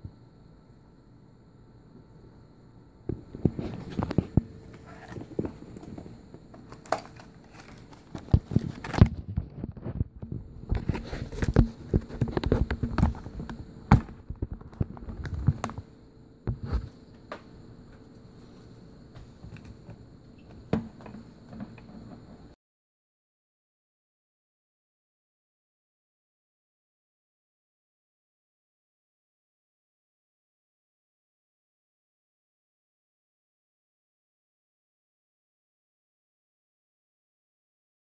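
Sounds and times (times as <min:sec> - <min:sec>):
faint steady tone: 0:00.0 - 0:08.2.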